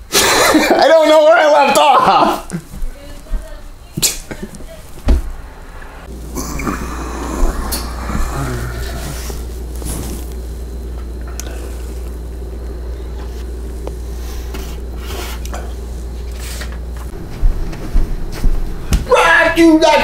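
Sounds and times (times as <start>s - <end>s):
steady low hum: 2.2s - 20.0s
faint rustles: 7.4s - 17.0s.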